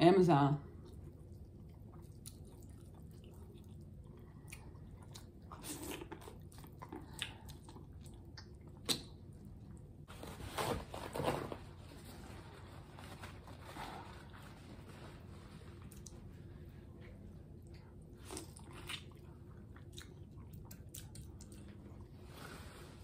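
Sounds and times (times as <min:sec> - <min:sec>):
close chewing and biting: 0:00.8 - 0:09.2, 0:17.7 - 0:22.1
wet mouth clicks: 0:08.4 - 0:09.2
paper towel rustling: 0:10.1 - 0:16.9.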